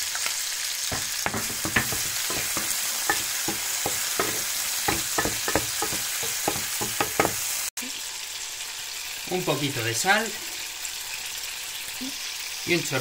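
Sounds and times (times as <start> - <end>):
prawns sizzling in hot oil: 0.0 - 13.0
spatula clicking and scraping pan: 0.9 - 7.6.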